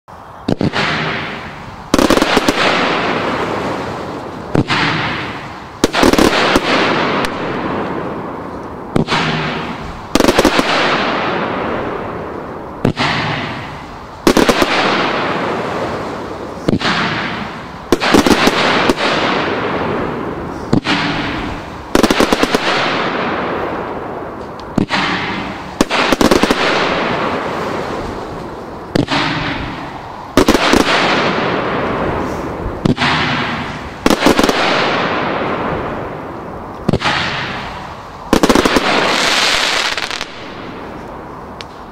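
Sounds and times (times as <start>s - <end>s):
firework crackle: 0.2s - 41.9s
firework bangs: 0.4s - 41.9s.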